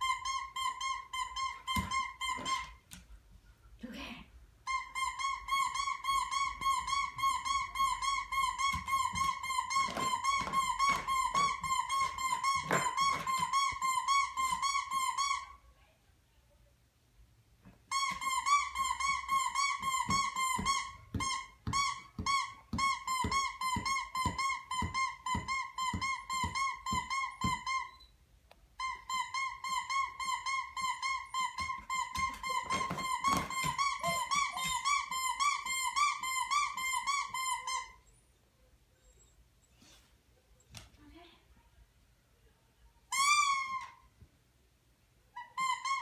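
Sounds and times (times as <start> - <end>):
squeaky dog toy squeaking: 0.0 - 3.0, 4.6 - 15.8, 17.6 - 38.4, 43.1 - 44.2, 45.3 - 46.0.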